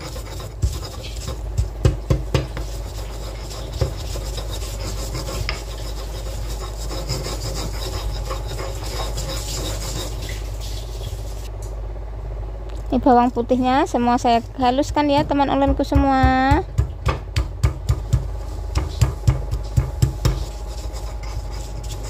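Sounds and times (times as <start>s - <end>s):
stone pestle grinding in mortar: 0.0s - 11.5s, 17.7s - 22.0s.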